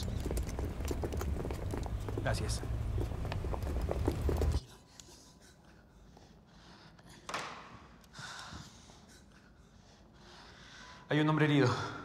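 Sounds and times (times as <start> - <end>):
soft breaths: 4.6 - 11.1.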